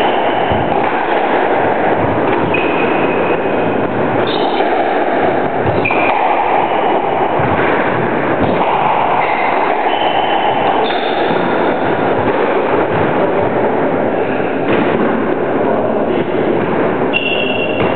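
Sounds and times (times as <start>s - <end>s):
loud rushing noise: 0.0s - 17.9s
squash ball knocks: 0.0s - 17.9s
shoes squeaking on floor: 17.1s - 17.9s.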